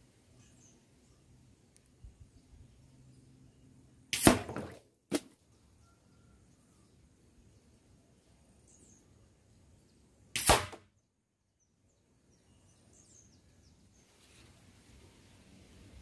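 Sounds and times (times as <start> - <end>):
faint bird chirps: 0.2 - 2.9, 5.5 - 10.0
air rifle shot: 4.2 - 5.2, 10.4 - 10.8.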